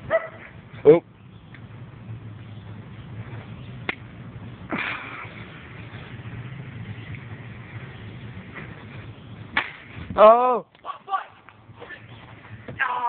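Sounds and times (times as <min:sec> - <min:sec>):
steady low hum: 0:00.0 - 0:10.2
plastic bat hitting ball: 0:09.5 - 0:09.9.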